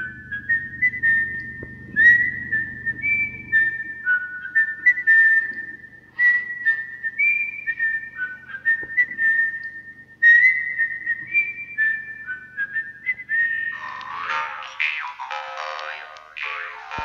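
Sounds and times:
steady low hum: 0.0s - 17.0s
person whistling a tune: 0.4s - 14.8s.

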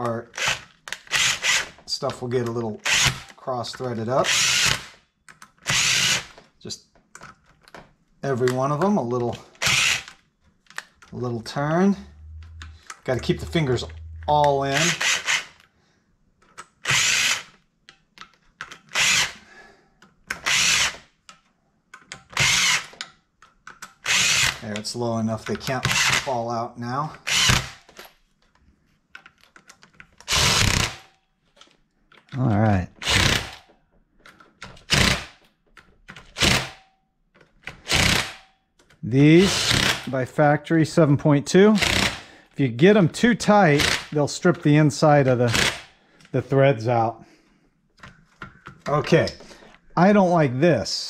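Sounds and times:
power drill spinning: 4.3s - 5.0s, 5.7s - 6.4s, 12.4s - 15.6s, 18.9s - 19.4s, 20.4s - 21.0s, 30.3s - 31.1s, 33.0s - 33.6s, 41.8s - 42.2s.

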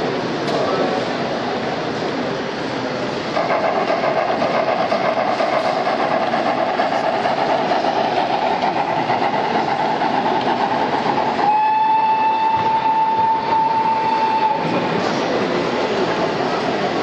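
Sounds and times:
model train rolling rumble: 0.0s - 17.0s
hall noise: 3.2s - 17.0s
steady whistle tone: 11.4s - 14.8s.

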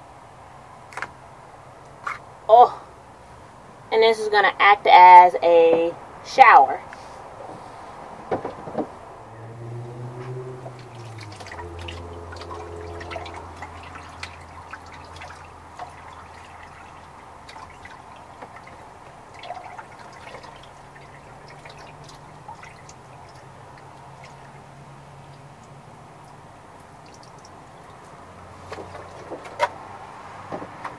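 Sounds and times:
water dripping and splashing: 8.1s - 30.9s.

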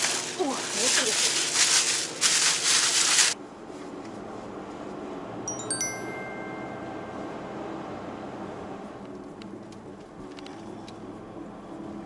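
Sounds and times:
sparkling chime sound effect: 5.5s - 7.7s.

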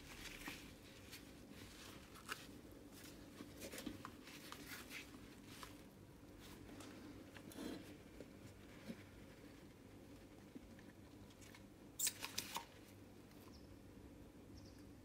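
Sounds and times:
handling rustles: 0.0s - 12.8s.

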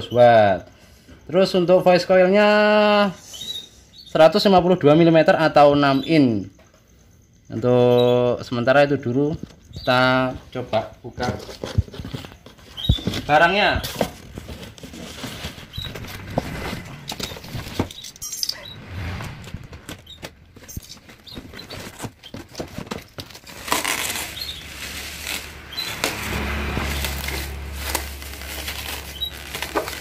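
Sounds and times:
cardboard box scraping: 11.4s - 30.0s
low rumble: 15.1s - 21.0s
plastic wrapping crinkling: 19.9s - 30.0s.

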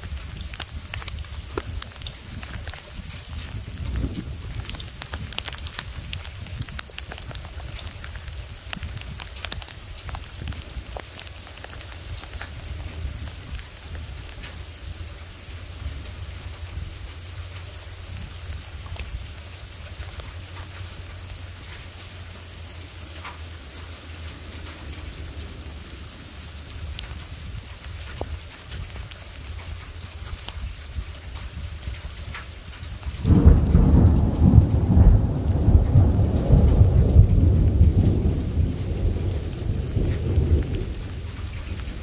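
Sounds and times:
rain falling: 0.0s - 42.0s
low rumble: 15.4s - 28.3s.

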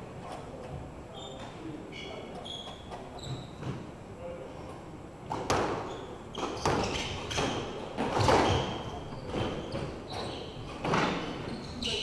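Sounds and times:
shoes squeaking on wooden floor: 1.2s - 3.9s, 5.5s - 12.0s.

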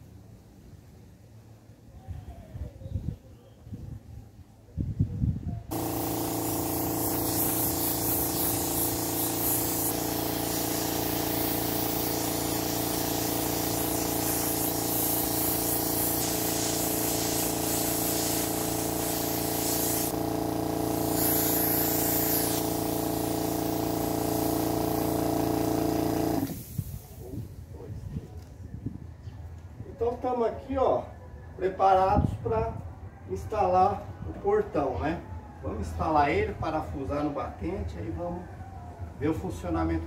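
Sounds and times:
electric compressor humming: 5.7s - 26.8s
spray gun hissing: 5.7s - 27.4s.

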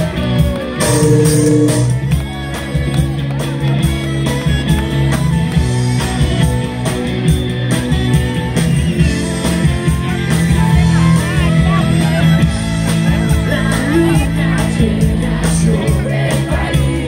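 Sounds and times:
bass: 0.0s - 17.0s
drums: 0.0s - 17.0s
electric guitars: 0.0s - 17.0s
saxophone: 0.6s - 3.1s.

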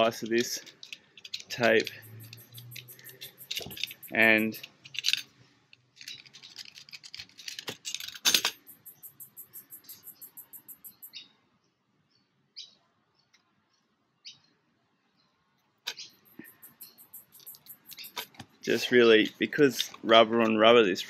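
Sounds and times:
birds chirping: 1.5s - 4.7s, 8.5s - 11.3s, 15.9s - 19.2s.

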